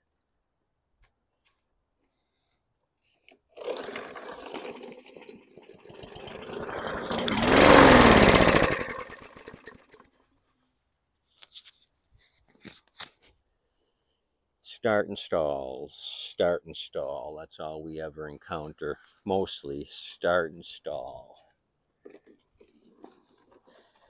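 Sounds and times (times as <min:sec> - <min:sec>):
lawn mower engine starting and stalling: 0:03.5 - 0:10.1.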